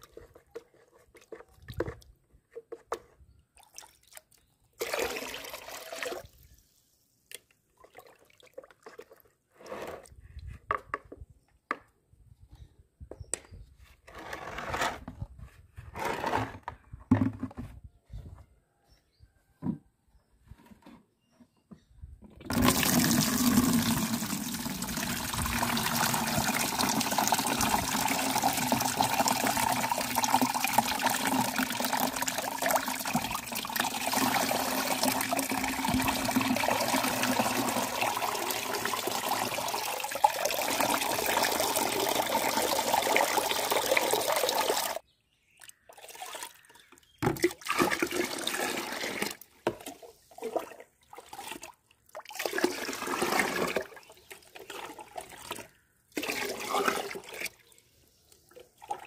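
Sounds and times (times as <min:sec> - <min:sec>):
water splashing in bucket: 0:03.6 - 0:06.4, 0:22.4 - 0:45.0, 0:45.6 - 0:57.7, 0:58.8 - 0:59.0
liquid pouring into plastic bucket: 0:04.8 - 0:06.4, 0:22.4 - 0:45.0, 0:47.3 - 0:57.6, 0:58.8 - 0:59.0.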